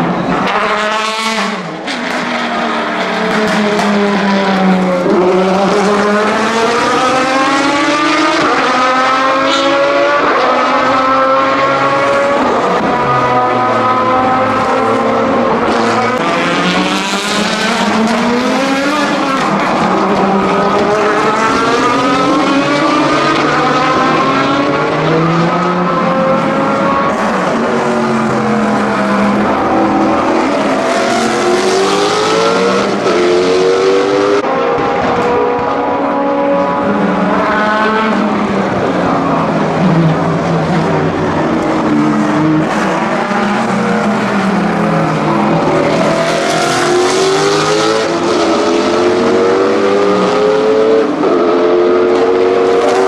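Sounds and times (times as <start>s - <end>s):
race car engines revving: 0.0s - 53.0s.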